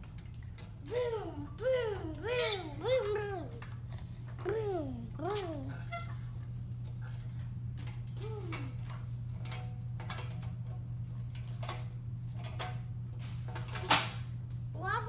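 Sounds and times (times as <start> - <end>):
metal tricycle clicking on wood floor: 0.0 - 14.0
steady low hum: 0.0 - 15.0
toddler vocal sound: 0.8 - 3.6, 4.4 - 5.9.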